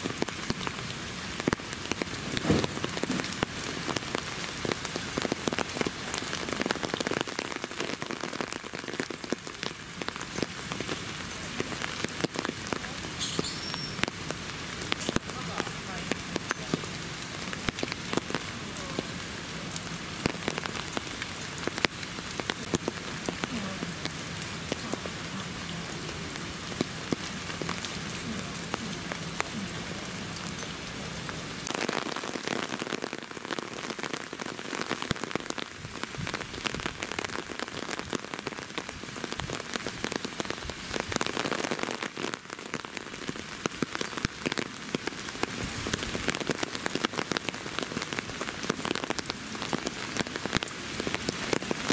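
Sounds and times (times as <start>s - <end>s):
steady rain falling: 0.0s - 51.9s.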